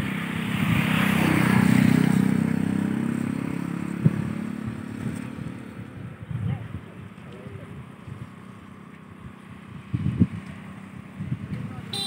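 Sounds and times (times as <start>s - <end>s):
vehicle engine passing by: 0.0s - 6.2s.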